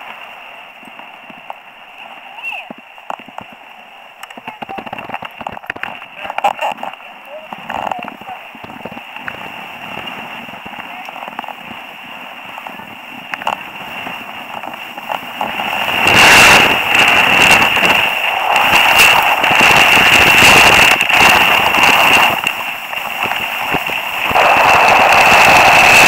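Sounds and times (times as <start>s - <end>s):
skis scraping over snow: 0.0s - 26.0s
snow crunching: 0.0s - 26.0s
small clicks: 4.2s - 11.7s
wind buffeting microphone: 4.3s - 26.0s.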